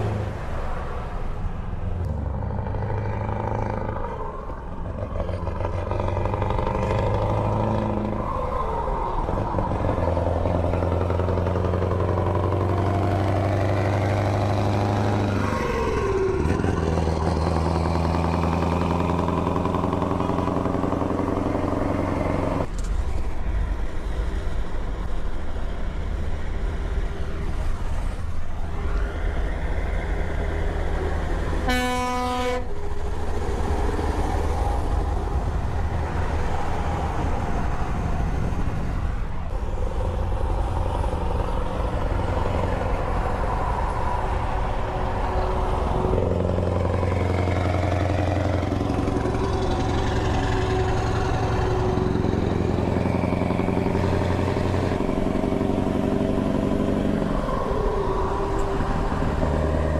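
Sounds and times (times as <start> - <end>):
diesel truck engine: 0.0 - 59.9
truck horn blast: 31.6 - 32.8.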